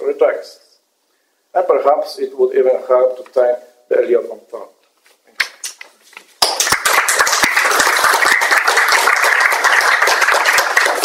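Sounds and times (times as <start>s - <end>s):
audience applause: 6.4s - 11.0s.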